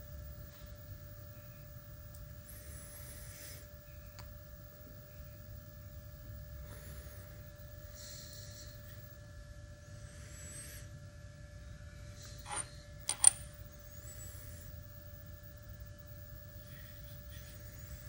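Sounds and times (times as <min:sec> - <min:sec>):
electrical hum: 0:00.0 - 0:18.0
sharp metal clicks: 0:12.5 - 0:13.5.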